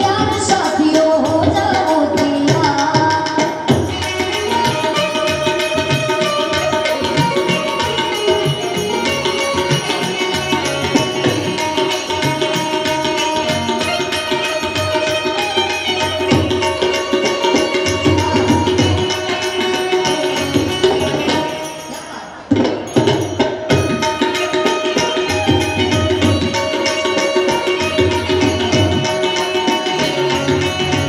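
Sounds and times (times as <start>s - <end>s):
woman singing: 0.0s - 5.1s
hand drums: 0.0s - 31.0s
harmonium chords: 0.0s - 31.0s
jingling percussion: 0.0s - 31.0s.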